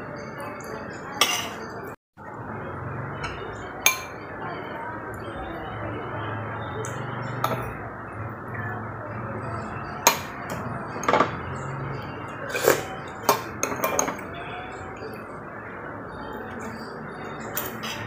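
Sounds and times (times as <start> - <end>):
cutlery clinking on ceramic: 1.2 - 1.7, 12.5 - 14.3.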